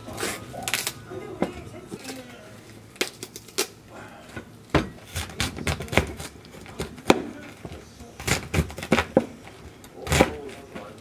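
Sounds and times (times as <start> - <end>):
knife chopping on cutting board: 4.8 - 9.4, 10.0 - 10.4.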